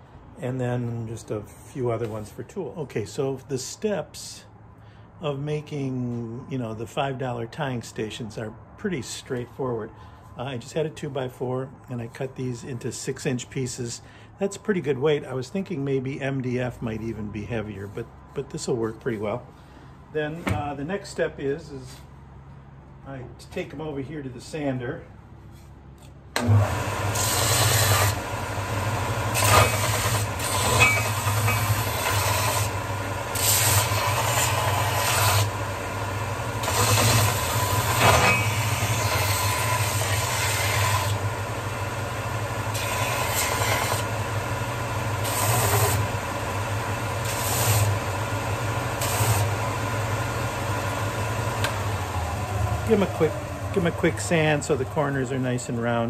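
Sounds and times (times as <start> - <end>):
wood blocks rasping against sander: 25.5 - 35.6, 36.5 - 41.4, 42.5 - 55.9
electric drum sander running: 26.4 - 56.0.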